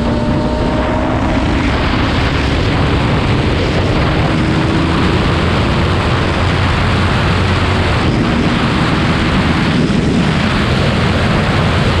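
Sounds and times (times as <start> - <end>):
motorcycle engine rumbling: 0.0 - 12.0
wind rush on microphone: 0.0 - 12.0.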